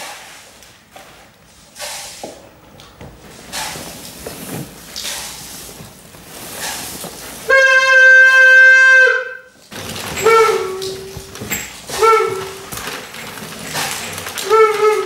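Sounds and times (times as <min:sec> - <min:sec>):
horn-like blown tone: 0:07.5 - 0:09.6, 0:10.2 - 0:11.2, 0:11.9 - 0:12.6, 0:14.4 - 0:15.0.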